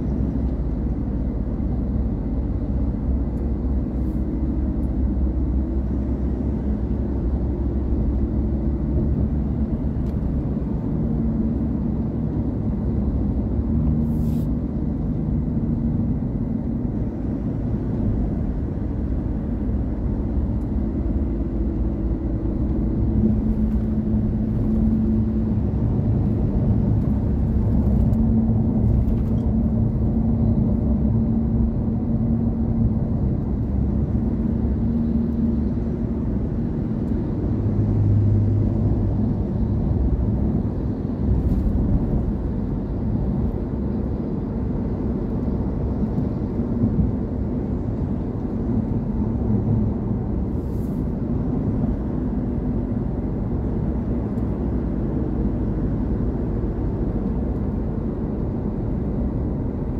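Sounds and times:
car engine and road noise: 0.0s - 59.9s.

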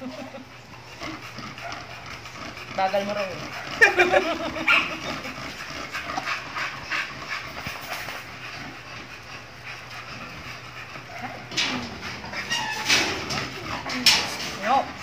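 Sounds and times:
dog panting: 0.0s - 15.0s.

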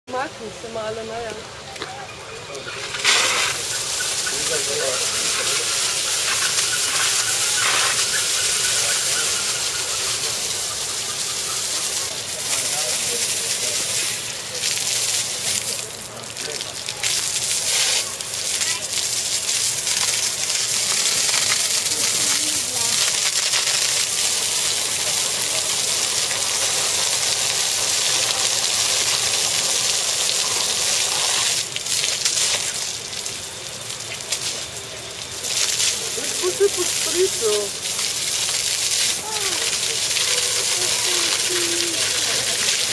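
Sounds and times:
faint voices: 0.1s - 23.6s, 33.9s - 42.9s
water spraying: 2.4s - 42.9s.

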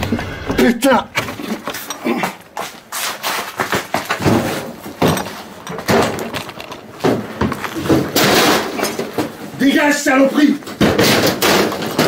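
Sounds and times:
objects thrown landing with clatter: 3.6s - 9.4s.

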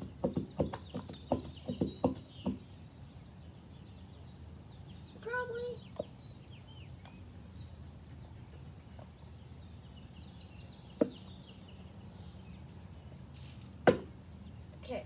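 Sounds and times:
bird chirps: 0.0s - 2.8s, 3.7s - 8.6s, 9.9s - 13.2s
insect trilling: 0.0s - 15.0s
sharp tap: 0.2s - 2.6s, 13.9s - 14.1s.

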